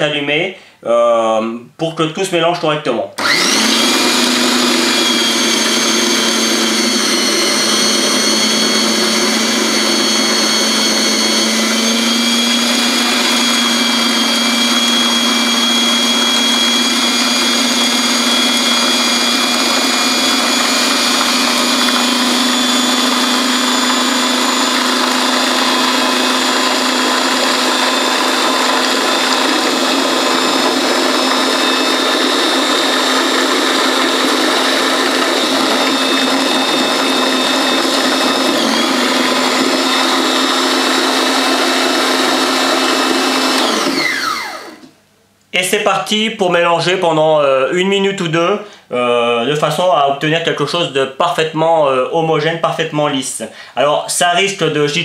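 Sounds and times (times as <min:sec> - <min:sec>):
food processor motor whine: 0:03.2 - 0:45.0.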